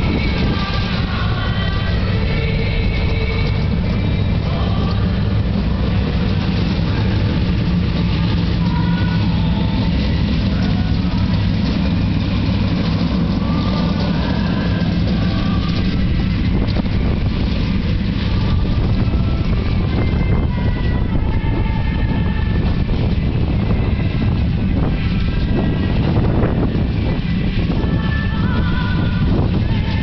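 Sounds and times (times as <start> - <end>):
race car engines rumbling: 0.0 - 30.0.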